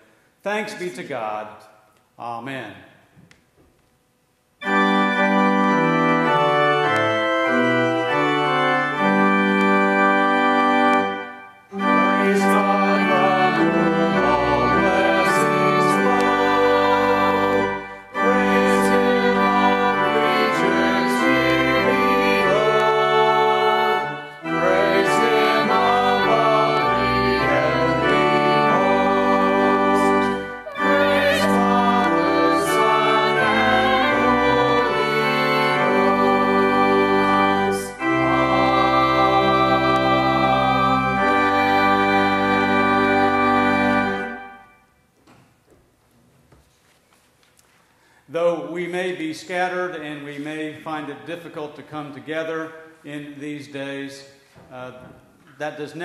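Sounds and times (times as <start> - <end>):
pipe organ playing slow chords: 4.6 - 45.0.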